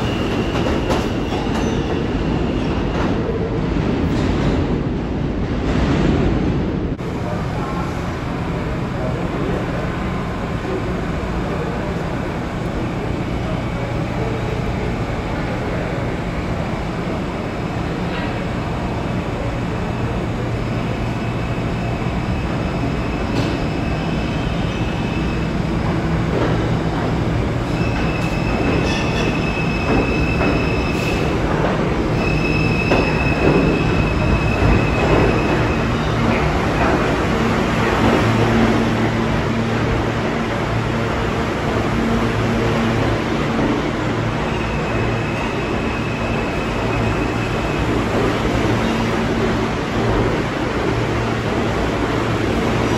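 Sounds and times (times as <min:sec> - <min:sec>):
subway train rumble: 0:00.0 - 0:52.9
train brakes squealing: 0:27.6 - 0:31.4, 0:32.1 - 0:36.2.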